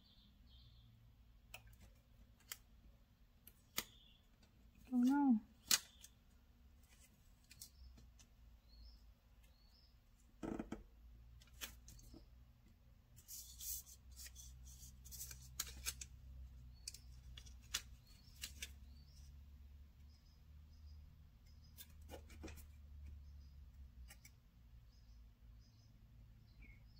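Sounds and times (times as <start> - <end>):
sticker paper rustling: 13.2 - 16.2.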